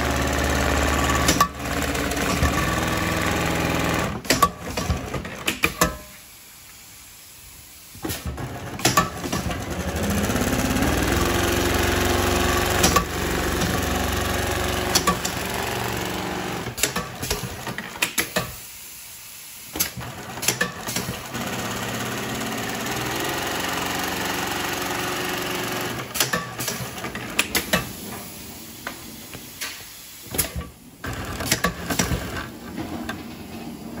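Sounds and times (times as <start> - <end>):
industrial sewing machine stitching: 0.0 - 5.5, 8.2 - 18.1, 19.8 - 28.0, 31.0 - 32.9.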